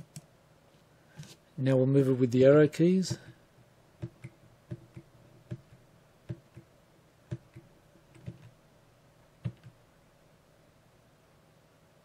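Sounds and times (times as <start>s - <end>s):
keyboard keys tapping: 4.0s - 6.7s, 7.3s - 8.6s, 9.4s - 9.8s.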